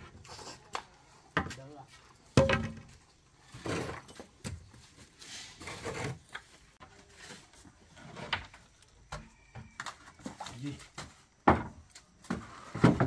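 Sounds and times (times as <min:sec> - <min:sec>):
rubbing and scraping: 0:03.4 - 0:08.8.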